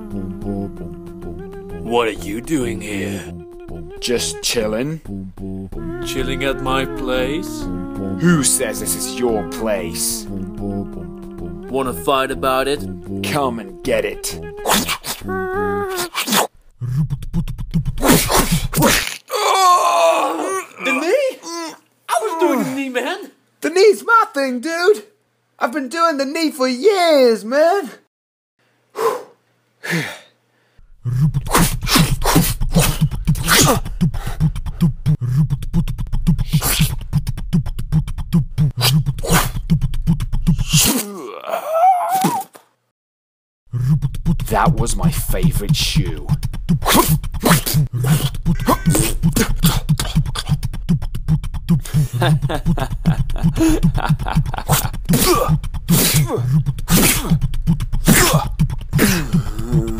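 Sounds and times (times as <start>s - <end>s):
vocal fight sound effects: 0.0s - 16.5s, 18.0s - 19.2s, 31.2s - 35.5s, 38.6s - 39.6s, 46.7s - 50.6s, 53.4s - 57.4s, 58.0s - 59.9s
beatboxed clicks and thumps: 8.6s - 19.2s, 31.0s - 40.9s, 43.7s - 59.9s.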